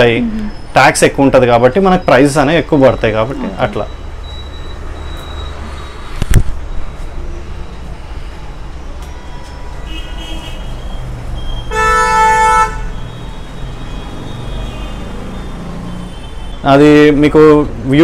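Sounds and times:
street traffic rumble: 0.0s - 18.0s
faint high beeps: 1.9s - 9.7s, 13.0s - 15.9s
vehicle horn honking: 9.1s - 10.9s, 11.6s - 15.1s.

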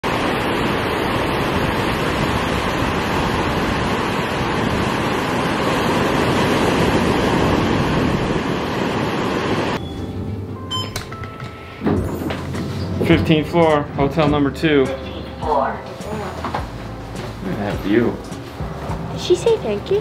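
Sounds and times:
waves breaking on beach: 0.0s - 9.8s.

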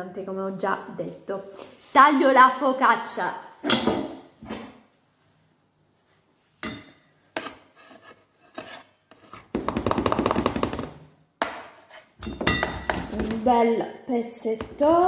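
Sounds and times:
knife knocking and scraping tin: 11.4s - 13.5s.

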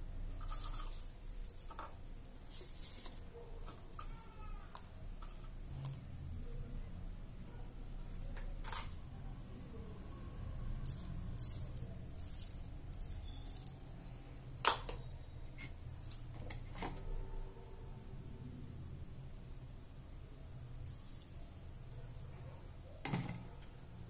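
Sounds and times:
low steady hum: 0.0s - 24.0s
kitchen items clicking and rustling: 0.3s - 6.0s, 8.3s - 9.1s, 23.0s - 23.7s.

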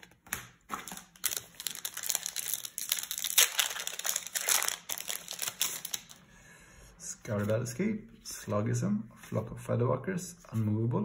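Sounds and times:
foil wrapper tearing and crinkling: 0.7s - 6.2s.

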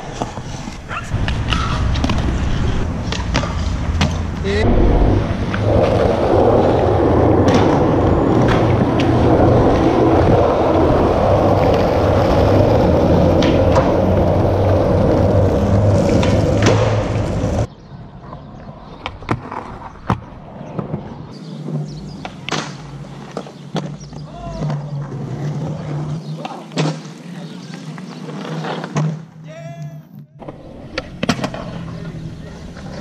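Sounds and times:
skateboard wheels rolling on concrete: 0.0s - 29.5s, 30.4s - 33.0s
skateboard clacks: 30.4s - 33.0s.

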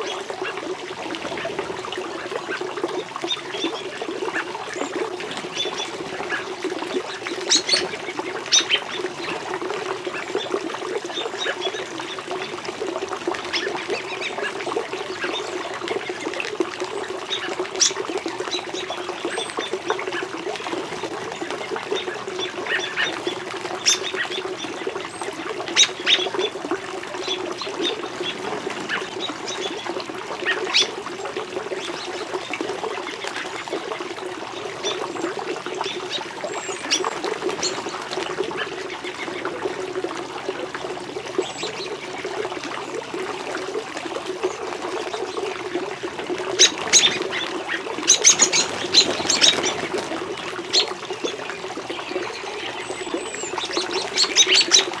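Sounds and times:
small waterfall into pond: 0.0s - 55.0s
water splashes and gurgles: 0.0s - 55.0s.

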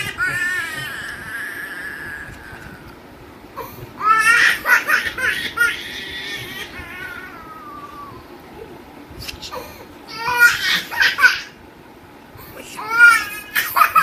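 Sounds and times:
toddler crying: 0.0s - 2.8s, 4.0s - 8.3s, 10.1s - 11.6s, 12.8s - 14.0s.

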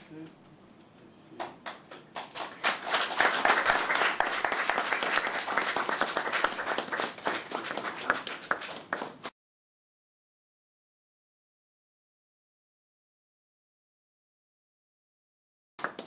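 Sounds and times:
group applause: 1.4s - 9.3s, 15.8s - 16.0s.

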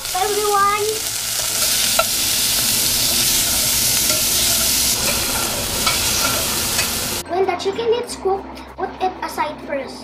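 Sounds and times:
chicken sizzling in oil: 0.0s - 7.2s
metal spoon clinking: 1.3s - 7.2s.

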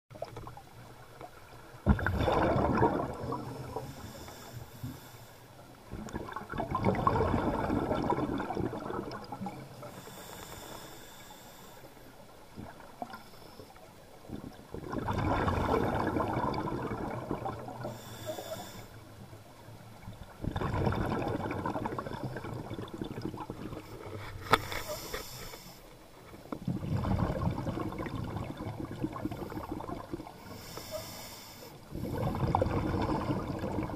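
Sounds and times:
exhaled bubbles underwater: 0.1s - 4.5s, 5.8s - 10.3s, 12.5s - 13.3s, 14.2s - 24.2s, 26.5s - 31.0s, 31.8s - 33.9s
hissy breaths through regulator: 3.6s - 5.5s, 9.9s - 12.1s, 17.8s - 19.1s, 23.9s - 26.0s, 30.4s - 32.4s.

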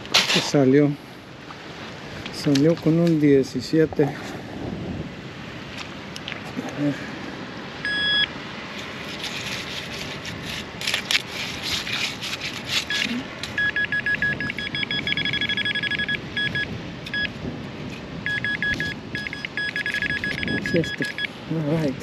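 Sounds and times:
digging clicks and scrapes: 0.0s - 0.6s, 8.7s - 13.7s
metal detector beeping: 7.8s - 8.3s, 12.8s - 17.4s, 18.2s - 21.4s.

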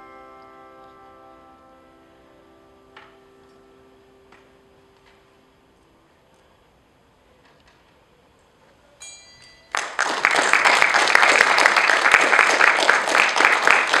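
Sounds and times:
brief bell-like ring: 9.0s - 9.8s
audience applause: 9.7s - 14.0s.

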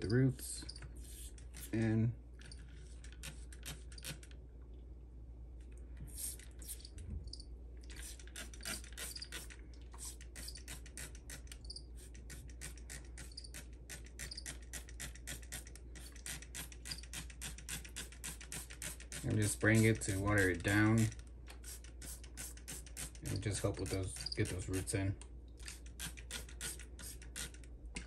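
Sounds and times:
spray bottle spritzing: 6.1s - 6.9s, 7.9s - 11.4s, 21.6s - 24.0s.

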